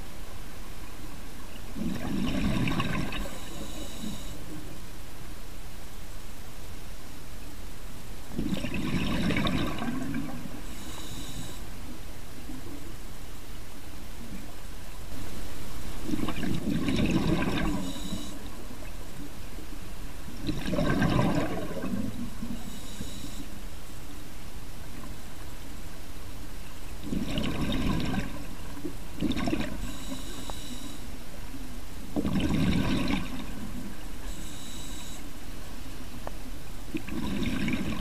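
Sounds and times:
gurgling exhaled bubbles: 0:01.8 - 0:03.4, 0:08.3 - 0:10.5, 0:16.0 - 0:18.1, 0:20.4 - 0:22.6, 0:27.0 - 0:29.9, 0:32.2 - 0:33.9, 0:36.9 - 0:38.0.

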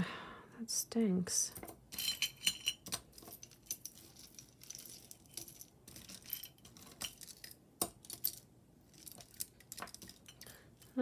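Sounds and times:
metal jewelry clinking: 0:01.6 - 0:11.0.

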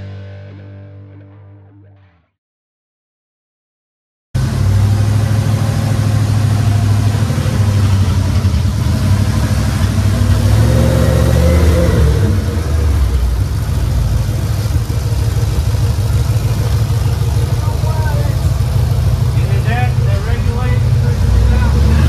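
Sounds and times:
pickup truck engine running: 0:04.4 - 0:22.0.

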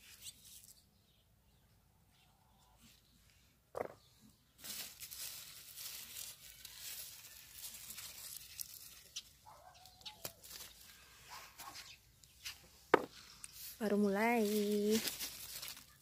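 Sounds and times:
bean plant leaves rustling: 0:04.5 - 0:11.8, 0:12.4 - 0:16.0.

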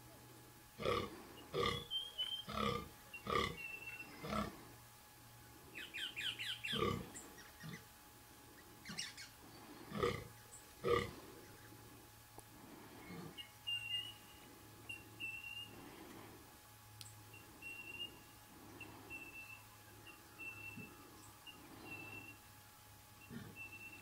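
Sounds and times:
deer groaning: 0:00.8 - 0:01.9, 0:02.5 - 0:04.6, 0:06.7 - 0:07.8, 0:08.8 - 0:11.4, 0:23.2 - 0:23.7
small bird chirping: 0:05.8 - 0:07.8.

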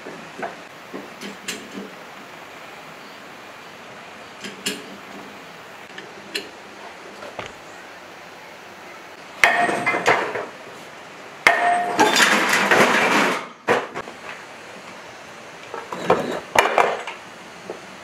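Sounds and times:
sledgehammer clanging on metal: 0:09.4 - 0:10.5, 0:11.5 - 0:13.6.

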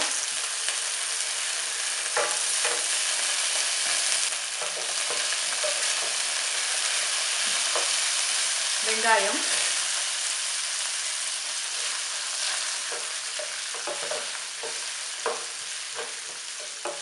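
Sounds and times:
spices sizzling in hot oil: 0:00.0 - 0:17.0
wooden spatula knocking on pan: 0:12.9 - 0:17.0.

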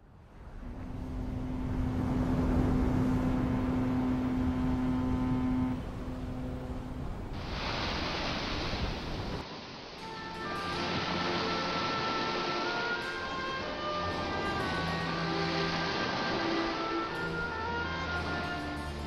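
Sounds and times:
low wind noise: 0:00.0 - 0:19.0
waves washing on shore: 0:06.9 - 0:18.8
foghorn blast: 0:10.0 - 0:19.0.

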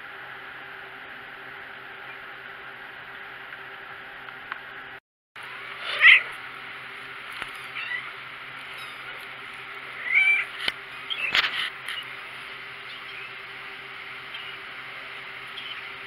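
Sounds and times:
kitten mewing: 0:05.8 - 0:06.4, 0:07.4 - 0:09.2, 0:09.9 - 0:10.6.

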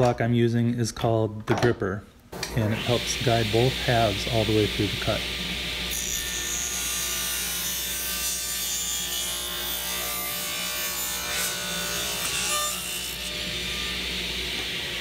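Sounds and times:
steady motor hum: 0:02.4 - 0:06.8
table saw cutting board: 0:02.4 - 0:15.0.

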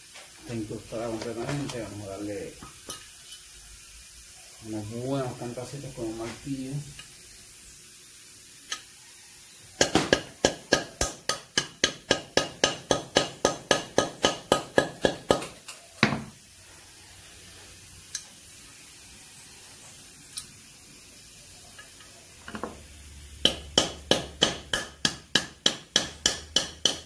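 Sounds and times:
hammer striking metal valve: 0:09.8 - 0:16.3, 0:23.4 - 0:27.0.

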